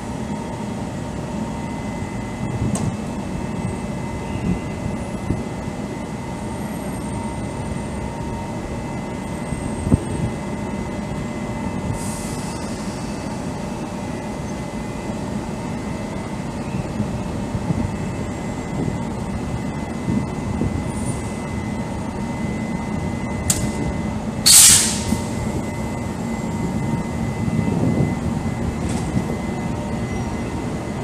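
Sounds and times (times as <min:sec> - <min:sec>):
electric locomotive humming: 0:00.0 - 0:31.0
short hiss: 0:24.5 - 0:25.2.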